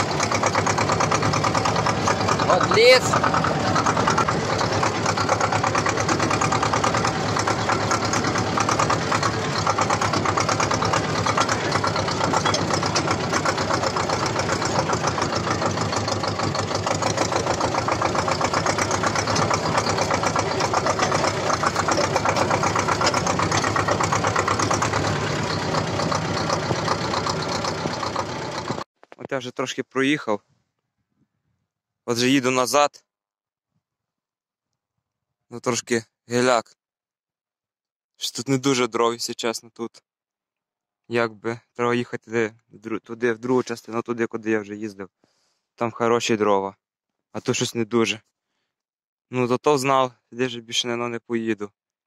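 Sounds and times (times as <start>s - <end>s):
tractor diesel engine running: 0.0s - 28.9s.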